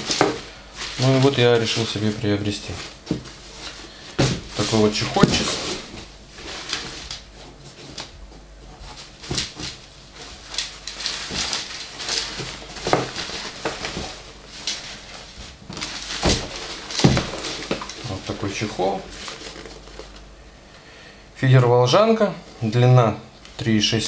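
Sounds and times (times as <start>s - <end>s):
fabric case rustling: 0.0s - 8.1s, 8.8s - 20.2s
dull knocks against cardboard box: 4.2s - 5.9s, 16.1s - 17.9s.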